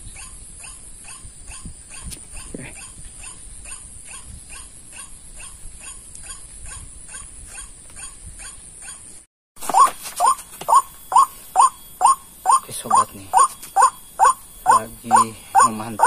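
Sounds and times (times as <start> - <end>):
bird call repeated falling note: 9.6 - 16.0.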